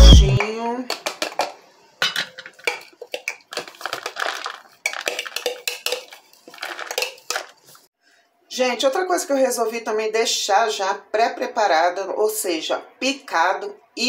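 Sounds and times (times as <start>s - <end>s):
fork scraping plastic bowl: 3.0s - 7.8s.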